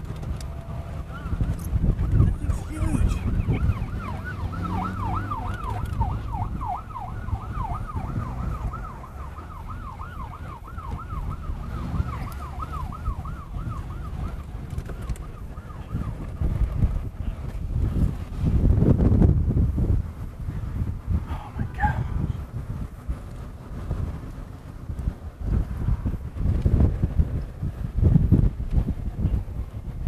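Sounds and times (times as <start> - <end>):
wind rumble on microphone: 0.0 - 30.0
siren yelping: 0.6 - 16.4.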